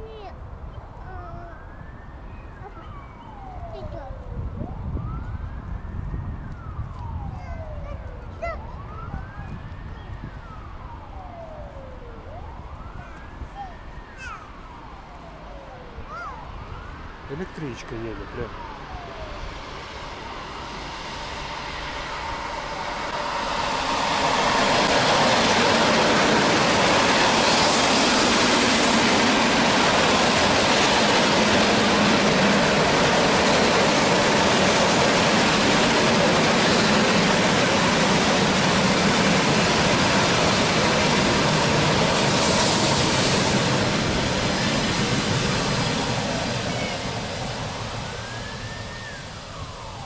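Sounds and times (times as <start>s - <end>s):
train wheels on rails: 19.3s - 50.0s.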